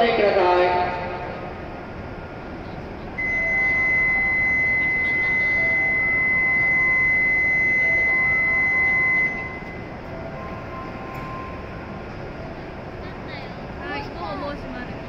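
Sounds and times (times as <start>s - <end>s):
departure buzzer high tone: 3.2s - 9.9s
faint short beeps: 3.2s - 9.9s.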